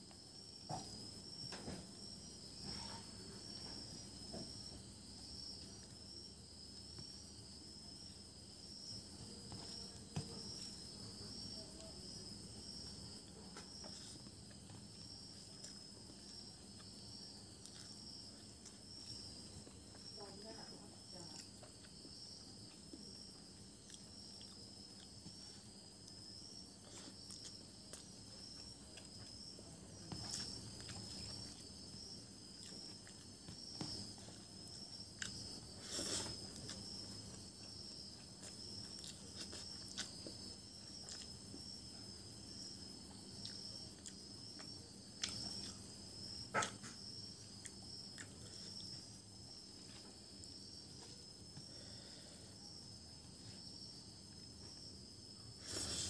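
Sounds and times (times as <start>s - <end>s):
insects chirping: 0.0s - 56.0s
eating by hand clicks and smacks: 27.0s - 41.8s, 43.2s - 49.0s.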